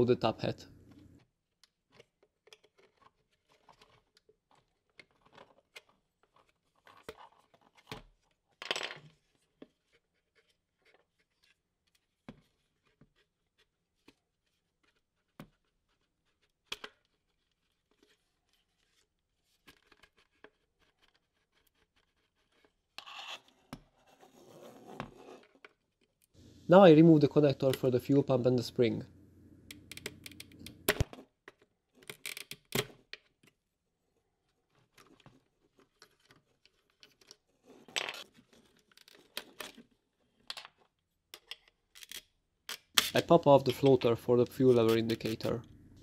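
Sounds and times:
plastic housing clicks and scrapes: 0:29.7 - 0:33.3.

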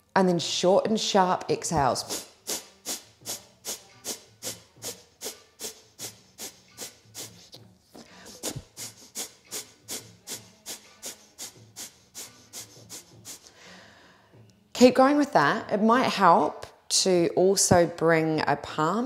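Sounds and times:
woman's sharp nasal exhalations: 0:02.1 - 0:14.3.

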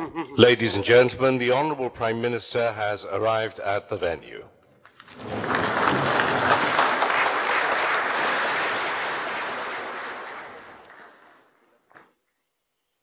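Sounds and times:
audience applauding: 0:05.0 - 0:11.7.

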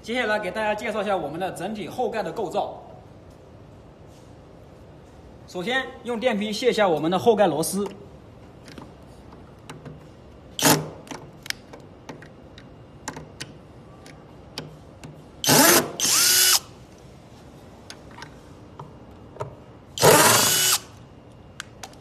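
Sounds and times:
cordless drill running: 0:15.4 - 0:16.7, 0:20.0 - 0:20.9.

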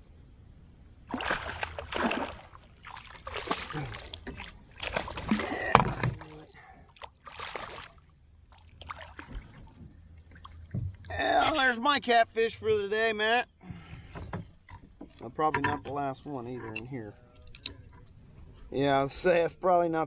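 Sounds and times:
fish splashing in water: 0:01.1 - 0:06.0, 0:07.1 - 0:08.0.

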